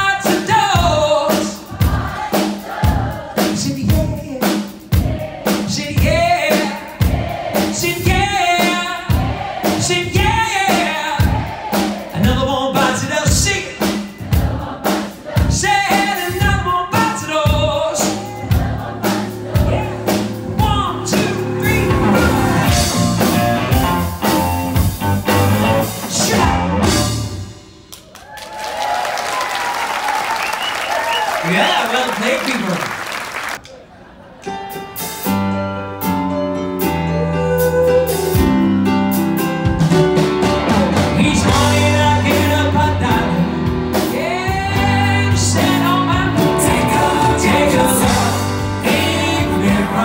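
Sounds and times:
man singing lead vocals: 0.0 - 1.9, 3.4 - 4.8, 5.6 - 23.8, 25.7 - 27.2, 37.1 - 38.8, 40.6 - 50.0
live rock band playing: 0.0 - 28.0, 34.5 - 50.0
applause: 27.9 - 33.6.

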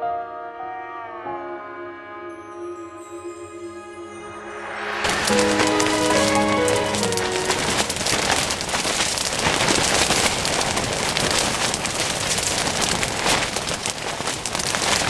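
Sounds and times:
rain pattering on tent fabric: 5.0 - 15.0.

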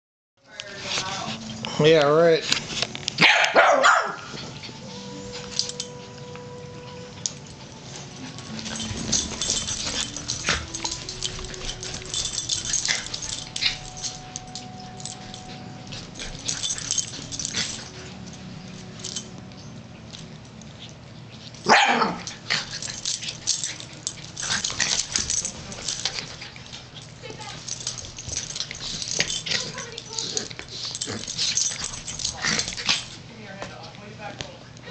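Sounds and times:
dogs scuffling: 0.5 - 34.9
dogs barking and yipping: 3.1 - 6.0, 6.8 - 19.4, 20.8 - 33.2
dog yelping: 3.2 - 4.3, 21.6 - 22.3.

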